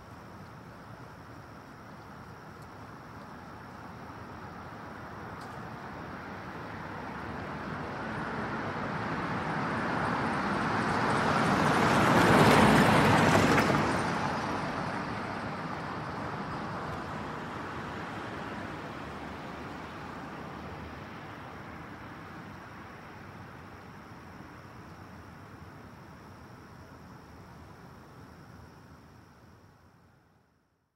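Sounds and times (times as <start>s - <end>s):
road vehicle passing by: 3.5s - 24.4s.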